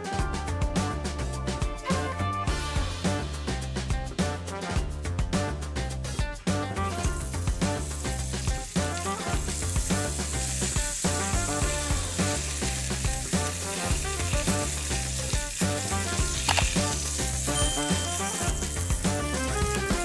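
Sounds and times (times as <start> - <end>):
background music: 0.0 - 20.0
food sizzling on grill pan: 6.9 - 20.0.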